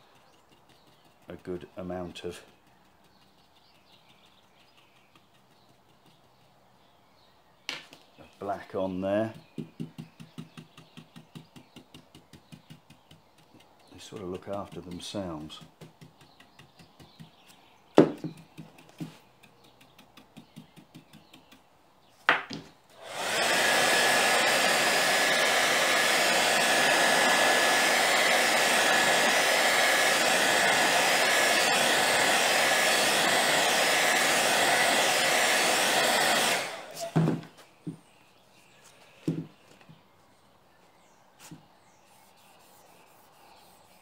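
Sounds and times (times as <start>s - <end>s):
hair dryer blowing: 23.0s - 37.5s.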